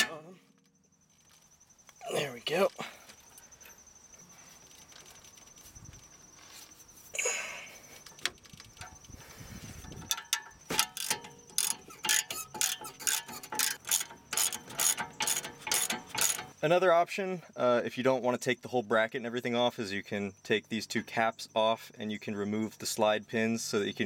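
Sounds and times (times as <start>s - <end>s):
metal knock: 0.0s - 0.9s
socket ratchet clicking: 10.0s - 16.6s.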